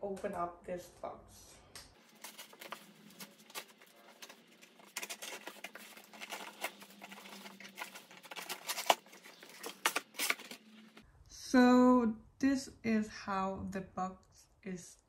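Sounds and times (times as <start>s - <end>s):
packing tape crackling: 2.0s - 11.0s.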